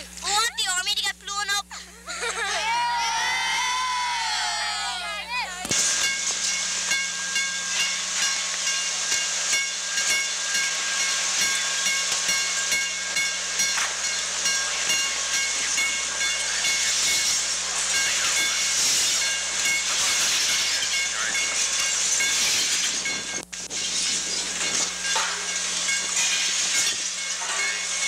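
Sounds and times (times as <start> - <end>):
low hum: 0.0 - 28.0
steady hiss: 5.7 - 28.0.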